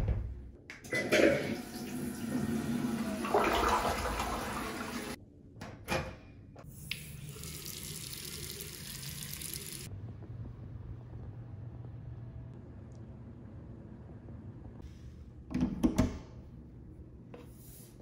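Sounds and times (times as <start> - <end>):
toilet flushing: 0.7 - 5.2, 6.8 - 9.9
faucet running into sink: 0.9 - 5.2, 6.8 - 9.9.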